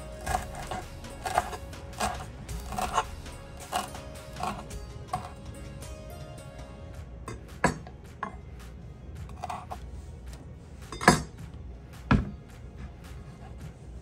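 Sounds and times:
dishes and utensils clinking: 0:00.0 - 0:05.5, 0:07.3 - 0:08.6, 0:09.2 - 0:10.0, 0:10.8 - 0:11.5.

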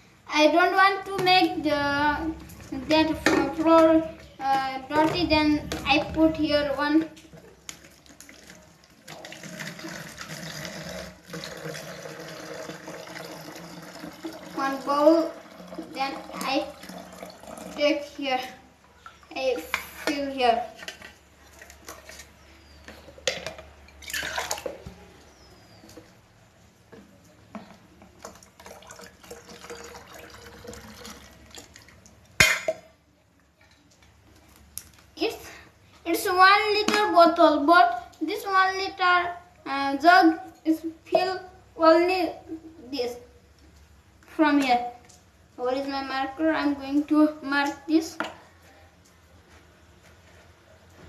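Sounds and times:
water pouring into container: 0:07.7 - 0:18.2, 0:24.0 - 0:24.8, 0:28.2 - 0:32.2.

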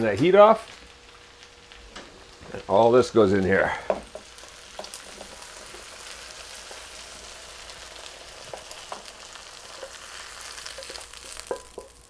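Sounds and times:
food sizzling in a frying pan: 0:00.0 - 0:12.0
spatula scraping and tapping: 0:10.7 - 0:12.0.

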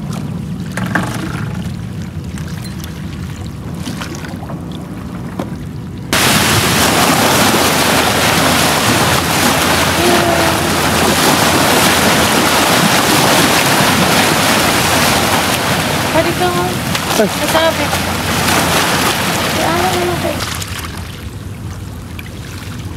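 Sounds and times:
water lapping: 0:00.0 - 0:22.9
waves washing against rocks: 0:06.1 - 0:21.3.

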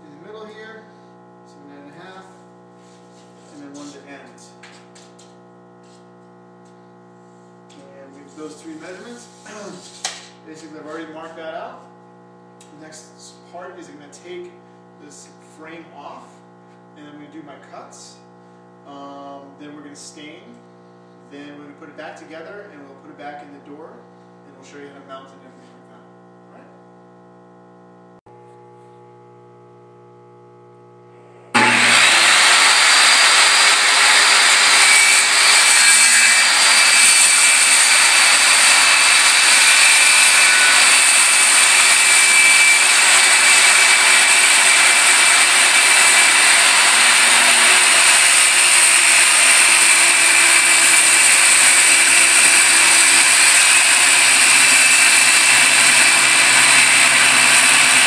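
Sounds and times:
circular saw cutting wood: 0:03.5 - 0:04.4, 0:07.8 - 0:11.6, 0:31.5 - 0:58.0.

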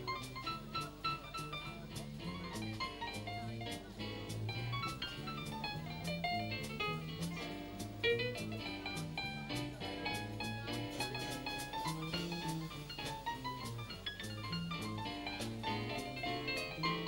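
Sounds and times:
jazz band playing: 0:00.0 - 0:17.0
piano: 0:00.0 - 0:17.0.

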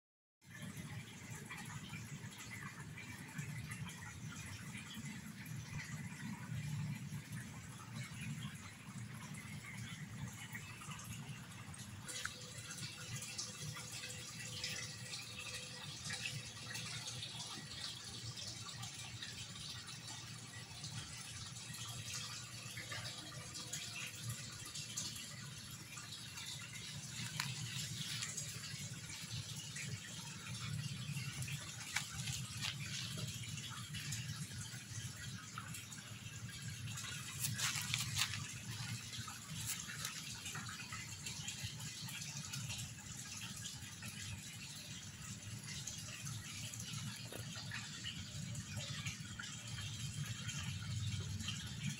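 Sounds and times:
pond water splashing: 0:31.2 - 0:34.8, 0:36.7 - 0:40.8.

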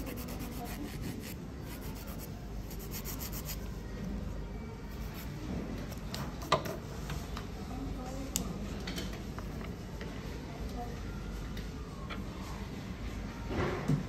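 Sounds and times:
nail file rasping: 0:00.0 - 0:03.6.

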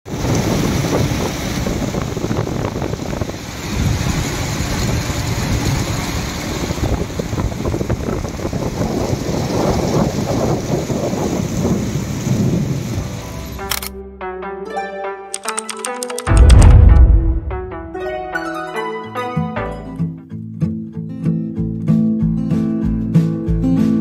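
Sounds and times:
water rushing in boat wake: 0:00.1 - 0:13.2
wind noise on microphone: 0:00.1 - 0:13.5.

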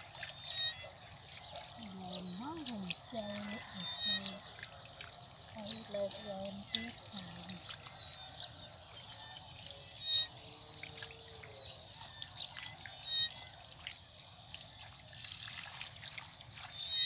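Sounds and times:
water trickling: 0:00.0 - 0:17.0
hands splashing in muddy water: 0:13.8 - 0:17.0.

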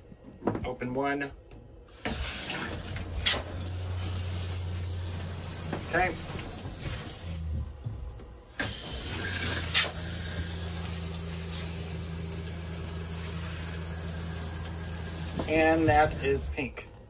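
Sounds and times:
shower head spraying: 0:01.9 - 0:07.4, 0:08.6 - 0:16.4
water pump humming: 0:01.9 - 0:17.0.

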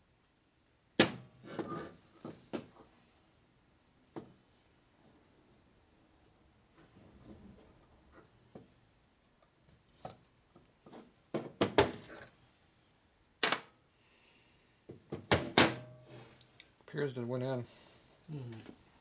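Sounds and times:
metal clinks and knocks: 0:12.0 - 0:12.5.

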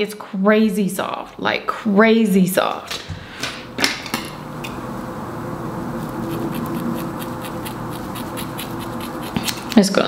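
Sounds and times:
steady background noise: 0:02.0 - 0:10.0
scissors snipping hair: 0:06.3 - 0:10.0.

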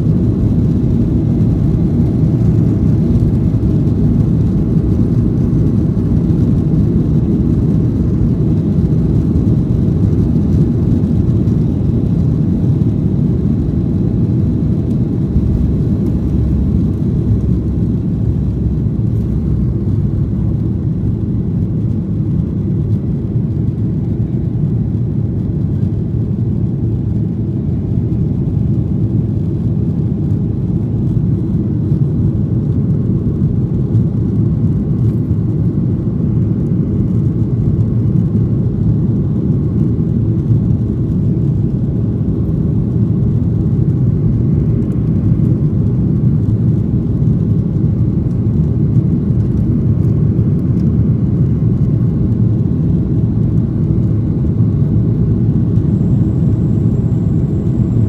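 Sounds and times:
jet engines at climb power: 0:00.0 - 0:58.0
air rushing over airframe: 0:13.2 - 0:22.4.

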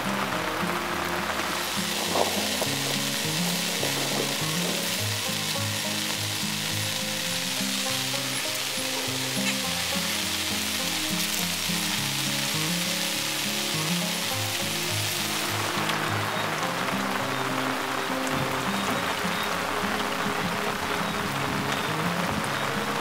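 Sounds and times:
low background music: 0:00.0 - 0:23.0
rain hissing: 0:00.0 - 0:23.0.

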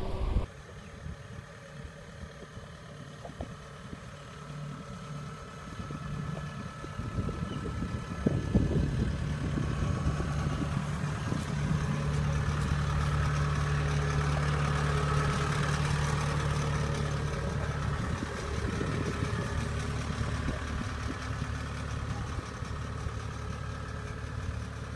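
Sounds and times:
diesel engine humming: 0:00.0 - 0:24.9.

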